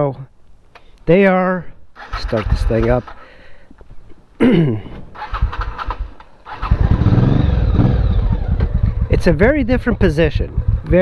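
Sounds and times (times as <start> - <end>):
motorcycle engine pulsing rumble: 2.0 - 3.2, 5.1 - 11.0
motorcycle engine starting: 2.0 - 3.4, 5.0 - 11.0.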